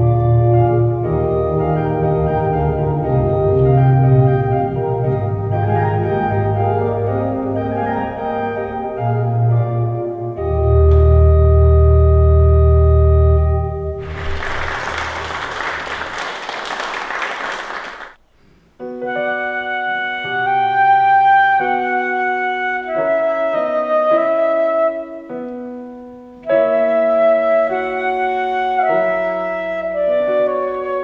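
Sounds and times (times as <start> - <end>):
flute melody: 0.0 - 15.4, 18.8 - 31.0
digital piano: 0.0 - 16.3, 18.8 - 31.0
audience clapping: 14.0 - 18.2.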